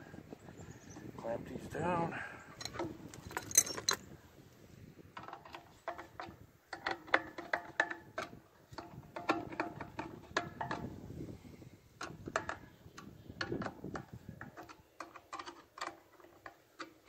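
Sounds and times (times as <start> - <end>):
handling rustle: 2.5 - 4.6.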